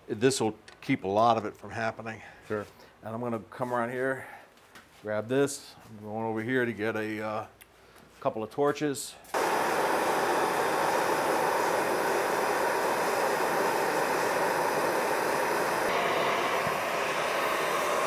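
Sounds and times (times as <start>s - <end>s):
propane torches hissing: 9.3s - 18.0s.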